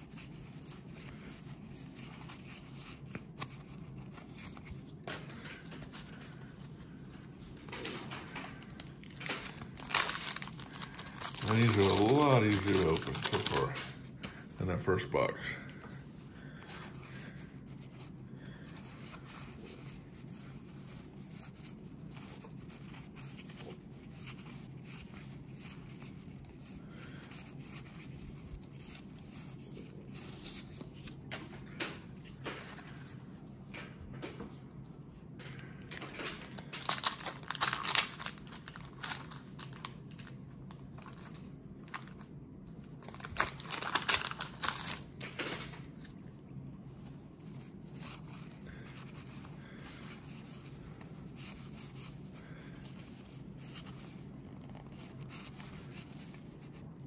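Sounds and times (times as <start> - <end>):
cards being handled: 0.0 - 15.2, 15.8 - 57.0
steady low hum: 0.0 - 57.0
wax paper wrapper tearing and crinkling: 7.6 - 15.3, 35.6 - 46.1, 47.5 - 57.0.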